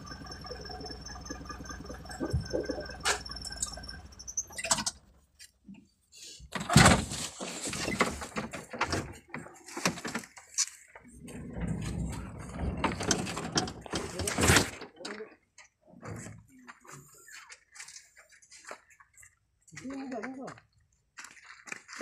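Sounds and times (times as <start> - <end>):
knocks and rattles: 6.5 - 10.3, 11.0 - 15.3.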